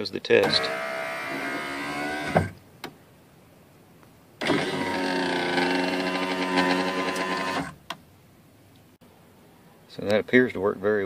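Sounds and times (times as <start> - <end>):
car power window motor whining: 0.4 - 2.6, 4.4 - 7.8
window stopping thump: 2.2 - 3.0.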